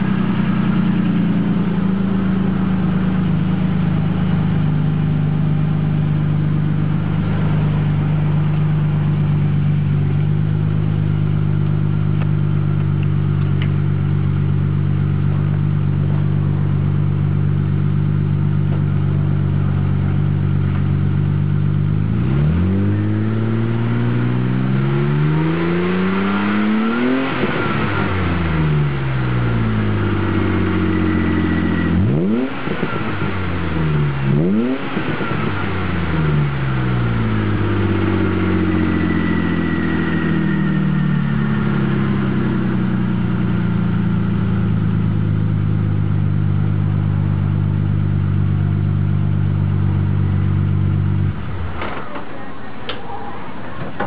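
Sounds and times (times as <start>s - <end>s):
car engine idling: 0.0s - 54.0s
car engine revving: 0.0s - 54.0s.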